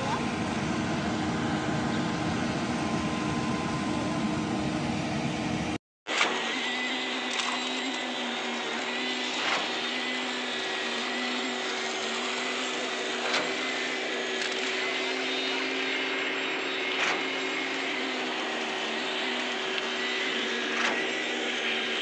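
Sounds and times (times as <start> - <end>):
machinery hum with high whine: 0.0 - 5.8.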